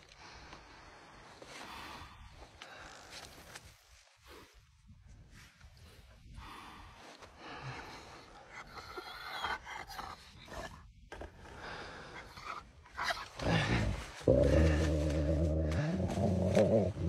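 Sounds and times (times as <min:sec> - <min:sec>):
heavy panting breaths: 0:06.2 - 0:17.0.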